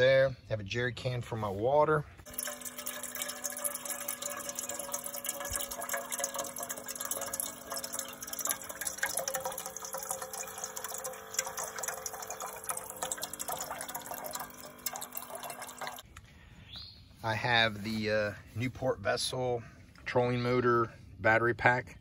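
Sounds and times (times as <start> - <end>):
water pump humming: 2.2 - 16.0
water pouring into metal pot: 2.3 - 16.0.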